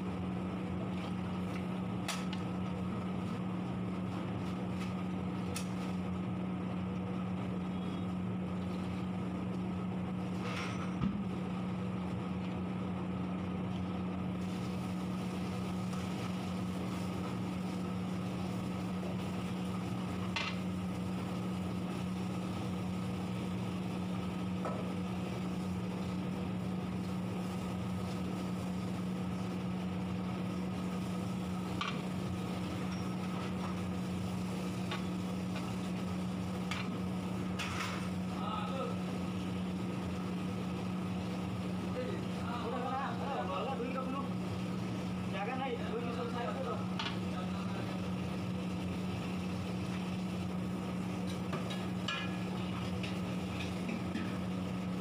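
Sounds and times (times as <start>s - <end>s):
steady mechanical hum: 0.0s - 55.0s.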